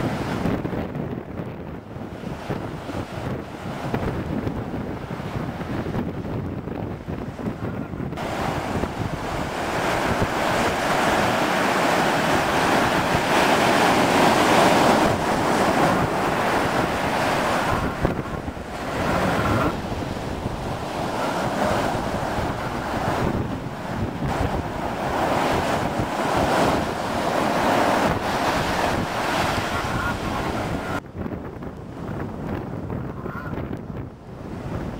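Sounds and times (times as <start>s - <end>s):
rushing water and surf: 0.0s - 34.9s
wind buffeting microphone: 0.0s - 34.9s.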